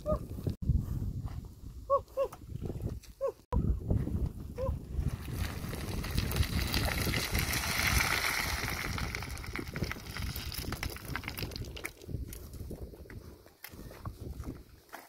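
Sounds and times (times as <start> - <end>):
wind rumble on microphone: 0.0 - 15.0
stones clattering underfoot: 5.0 - 15.0.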